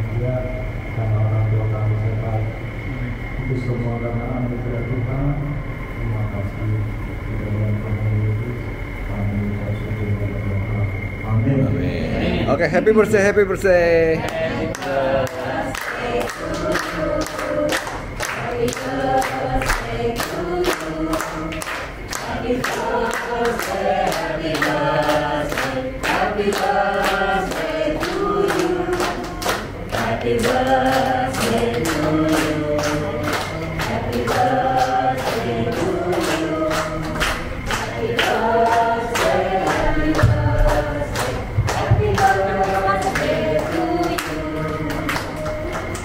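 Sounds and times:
group singing in chorus: 10.9 - 46.0
steady beat: 18.4 - 45.7.

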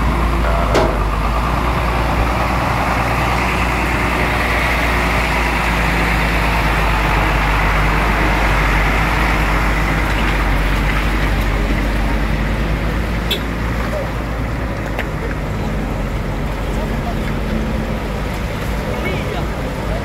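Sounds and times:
truck diesel engine running: 0.0 - 20.0
short knock: 0.6 - 1.2.

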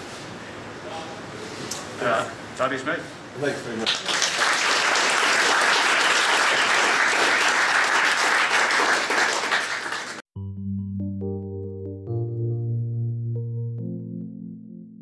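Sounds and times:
audience applauding: 3.8 - 10.2
music with held notes: 10.4 - 15.0.

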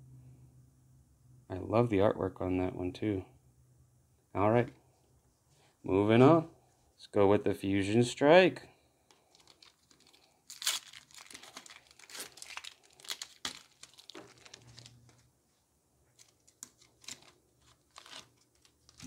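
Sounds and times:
foil crinkling: 9.1 - 15.3, 16.1 - 19.0
foil wrapper ripping: 9.2 - 15.2, 16.2 - 19.0.

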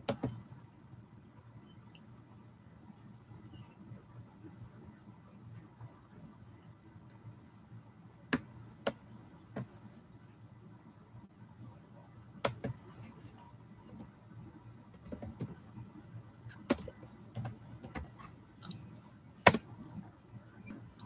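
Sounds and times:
computer keyboard typing: 0.0 - 0.4, 12.4 - 12.8, 13.8 - 14.1, 14.9 - 15.6, 16.5 - 18.8, 19.4 - 19.7.

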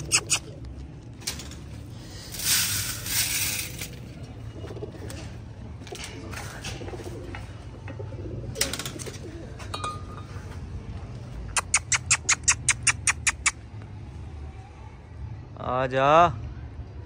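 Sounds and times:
high squeaky chirps: 11.6 - 13.6.

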